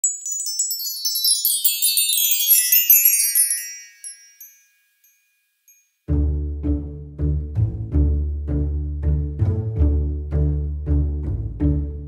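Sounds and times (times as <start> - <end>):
twinkling chime cascade: 0.0 - 6.1.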